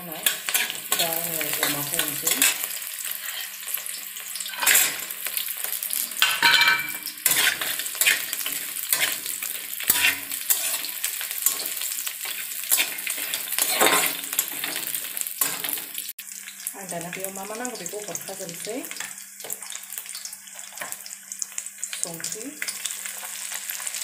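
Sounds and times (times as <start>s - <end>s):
food sizzling in hot oil: 0.0s - 24.0s
metal spatula scraping pan: 0.2s - 3.7s, 4.4s - 5.1s, 5.9s - 15.9s.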